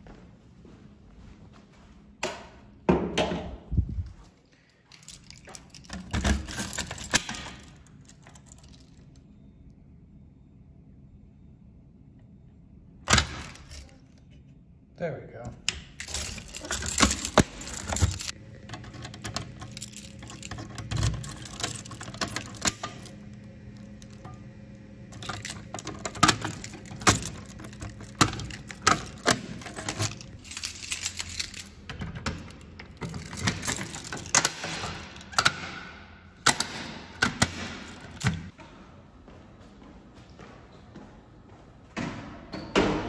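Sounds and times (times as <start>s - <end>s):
keys jangling: 4.6s - 9.2s, 13.2s - 14.0s, 15.9s - 35.6s
key working a lock: 4.9s - 9.1s, 15.6s - 35.6s.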